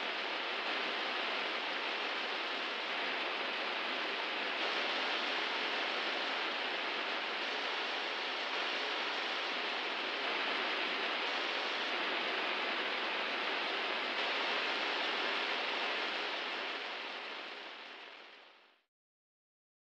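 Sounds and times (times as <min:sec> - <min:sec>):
steady hiss: 0:00.0 - 0:18.8.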